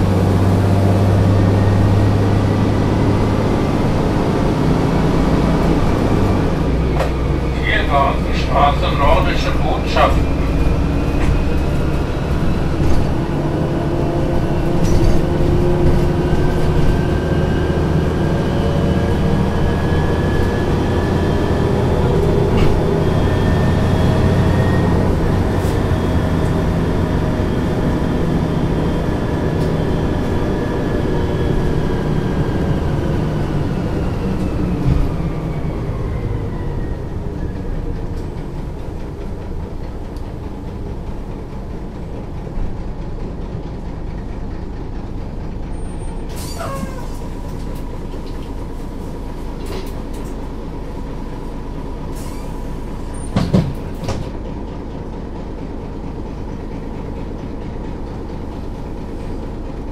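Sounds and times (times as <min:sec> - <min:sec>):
high gear whine: 0:00.0 - 0:42.4
bus diesel engine: 0:00.0 - 0:59.9.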